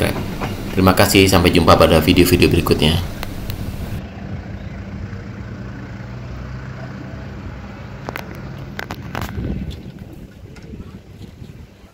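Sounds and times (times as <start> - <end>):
engine idling with low hum: 0.0 - 8.4.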